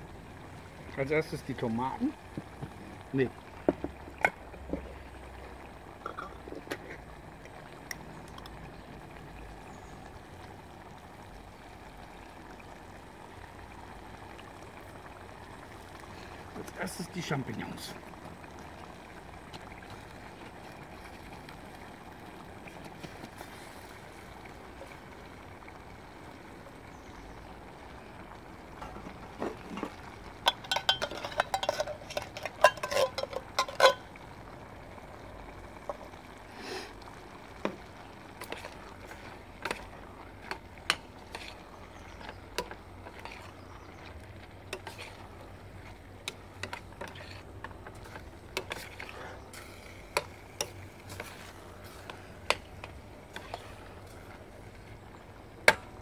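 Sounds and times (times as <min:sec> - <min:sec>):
spoon clinking in pot: 0:30.5 - 0:34.0
steady hiss: 0:35.3 - 0:43.8.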